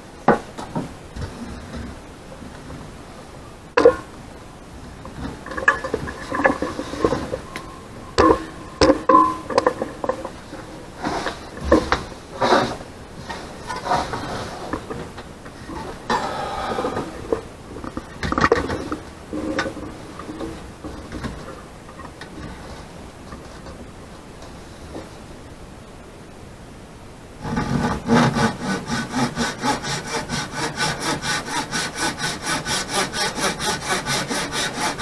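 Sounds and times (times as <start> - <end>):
wood and saw knocking: 5.5 - 10.4, 27.4 - 35.0
short ringing tones: 7.3 - 9.6.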